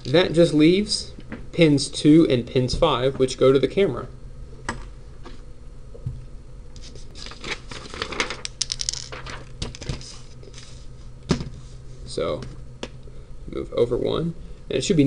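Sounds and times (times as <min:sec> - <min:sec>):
paper rustling: 0:06.8 - 0:10.9.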